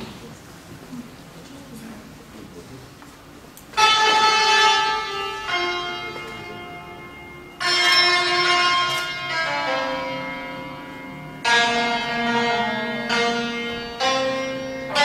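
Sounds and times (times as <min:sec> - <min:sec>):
hammered dulcimer notes: 0:03.8 - 0:15.0.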